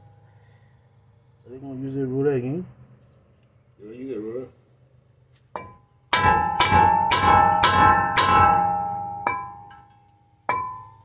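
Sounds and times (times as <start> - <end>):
hammer striking metal hub: 5.6 - 11.0.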